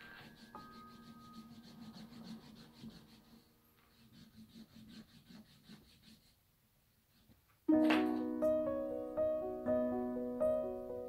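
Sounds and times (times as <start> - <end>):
hand tool rubbing leather: 0.0 - 6.4.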